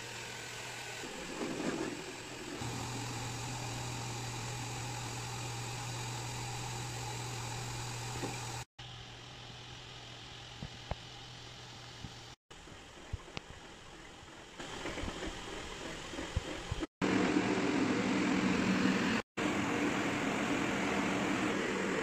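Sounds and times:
motor hum: 0.0s - 12.4s.

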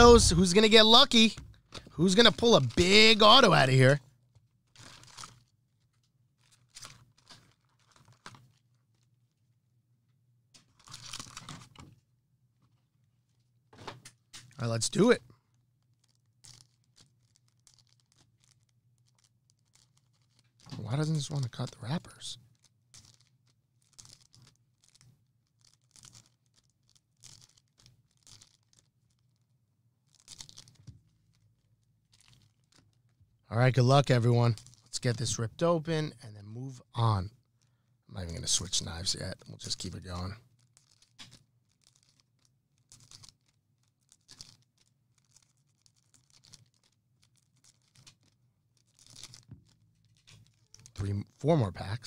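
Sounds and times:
low steady hum: 0.0s - 1.6s
card pack wrappers crinkling and ripping: 2.1s - 3.9s, 4.8s - 5.5s, 6.4s - 9.0s, 10.8s - 11.7s, 15.9s - 29.4s, 30.1s - 31.4s, 32.1s - 32.9s, 33.7s - 35.2s, 38.3s - 51.9s.

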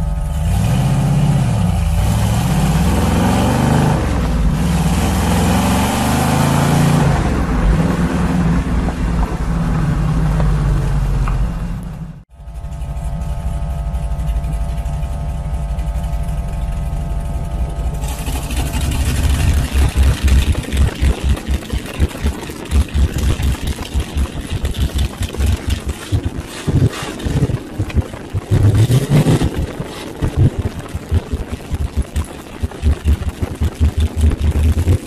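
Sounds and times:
car engine idling: 0.0s - 0.6s, 8.9s - 35.0s.

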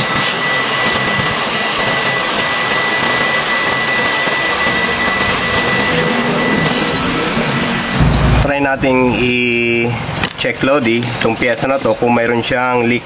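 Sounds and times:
thin high whine: 0.0s - 10.2s.

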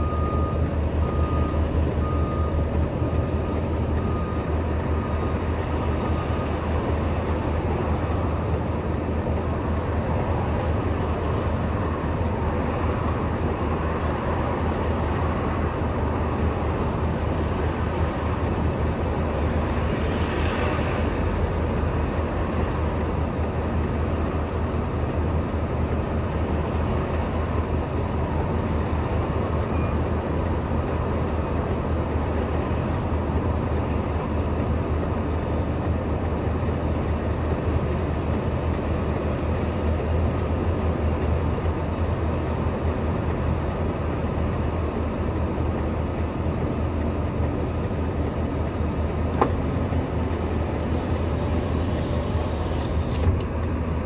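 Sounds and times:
faint high beeping: 0.0s - 2.6s
heavy engines idling: 0.0s - 54.0s.

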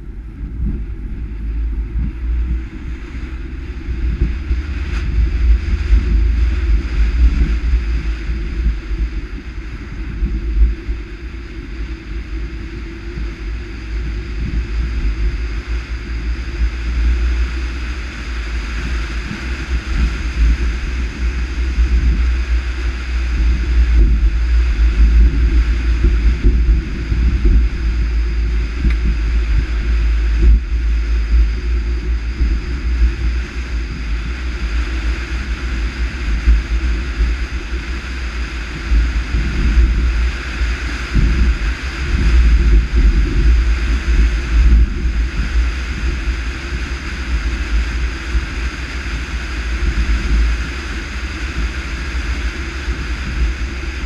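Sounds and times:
road and tyre rumble: 0.0s - 54.0s
wind buffeting microphone: 0.0s - 54.0s.

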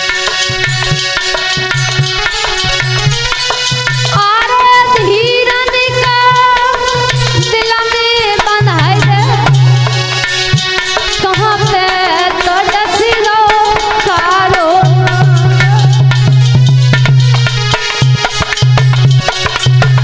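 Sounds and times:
hand drum beats: 0.0s - 20.0s
held instrumental notes: 0.0s - 20.0s
woman singing folk song: 4.2s - 9.6s, 11.2s - 15.6s.

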